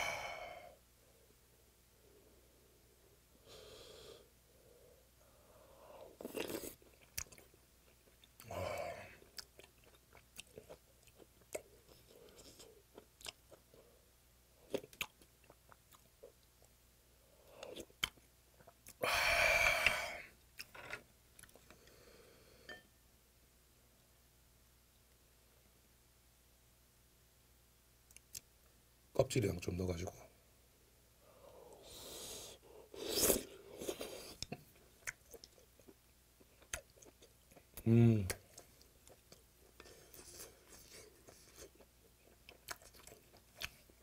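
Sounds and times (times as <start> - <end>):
person slurping soup: 31.8 - 34.4
wet chewing: 38.3 - 44.0.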